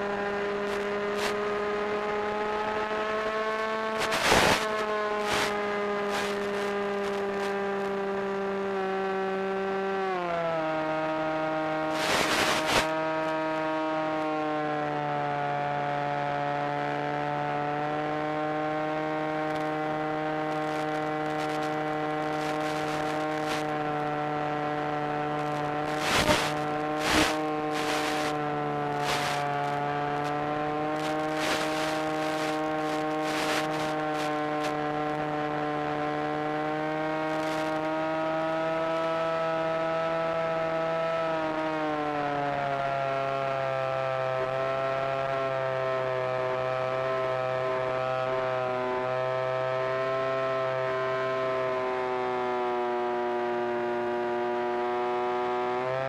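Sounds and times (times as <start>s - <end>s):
short crackles: 4.0s - 7.5s, 11.9s - 12.9s, 20.6s - 23.8s, 25.3s - 28.4s, 29.0s - 29.8s, 31.0s - 34.8s.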